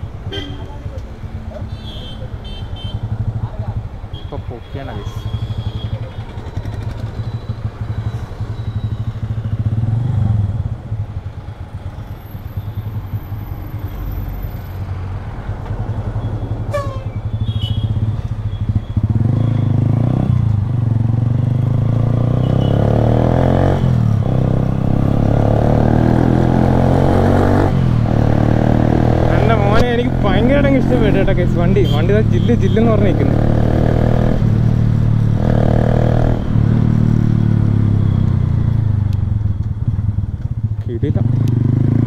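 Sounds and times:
other traffic: 0.0 - 42.0
motorcycle engine revving: 17.4 - 42.0.

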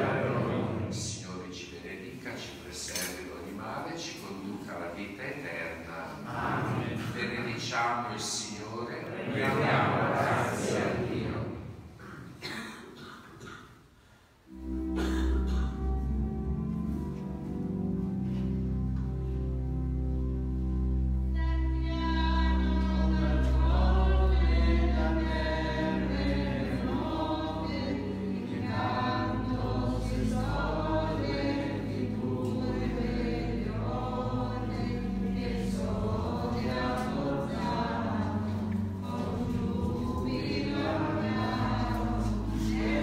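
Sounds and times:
group singing a hymn: 0.0 - 1.1, 6.1 - 7.6, 8.8 - 12.0, 21.3 - 43.0
long low instrumental notes: 0.0 - 1.4, 14.5 - 43.0.

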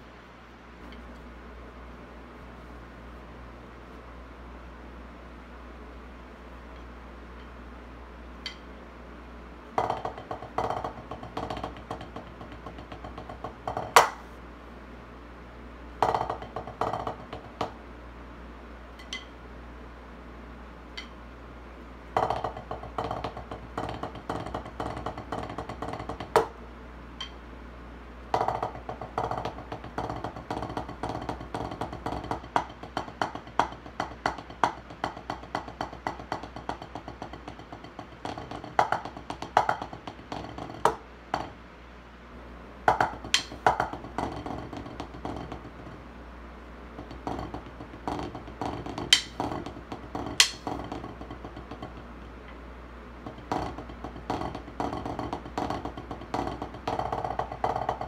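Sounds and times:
drumsticks tapping practice pad: 6.6 - 7.7, 8.4 - 8.8, 9.7 - 14.4, 16.0 - 17.8, 18.9 - 19.4, 20.9 - 21.3, 22.1 - 26.6, 27.2 - 27.5, 28.3 - 41.6, 42.9 - 46.0, 47.0 - 52.6, 53.2 - 58.0.

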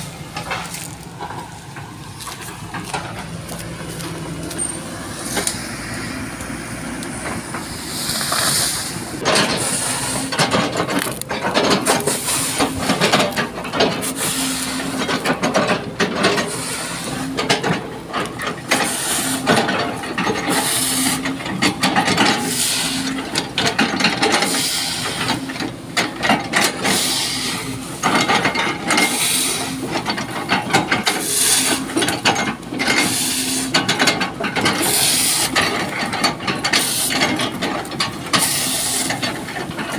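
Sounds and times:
excavator engine and hydraulics: 0.0 - 39.9.

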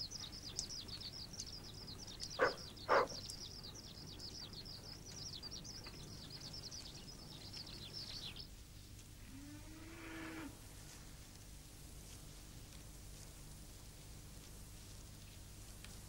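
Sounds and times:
small birds twittering: 0.0 - 8.5
cow mooing: 9.3 - 10.6.

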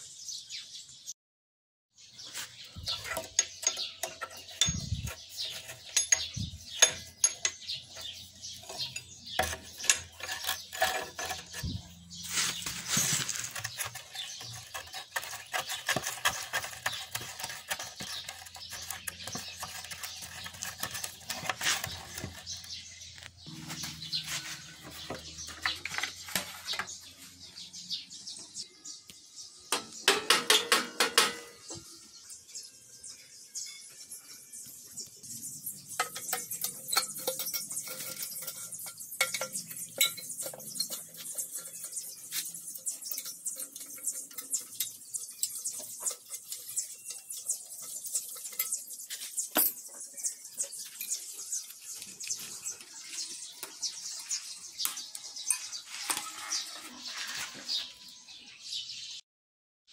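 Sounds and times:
hand tool clinking on metal: 2.8 - 11.7, 35.9 - 50.0.

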